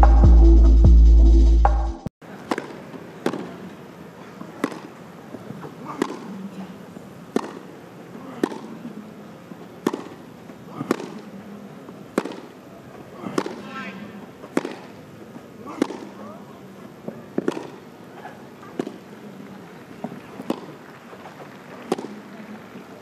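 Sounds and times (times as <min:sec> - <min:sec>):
throbbing electronic music: 0:00.0 - 0:02.1
racket hitting tennis ball: 0:02.4 - 0:03.6, 0:04.5 - 0:06.4, 0:07.3 - 0:08.9, 0:09.8 - 0:11.4, 0:12.0 - 0:12.6, 0:13.2 - 0:13.8, 0:14.4 - 0:15.0, 0:15.7 - 0:16.3, 0:17.1 - 0:19.1, 0:20.0 - 0:20.8, 0:21.8 - 0:22.3.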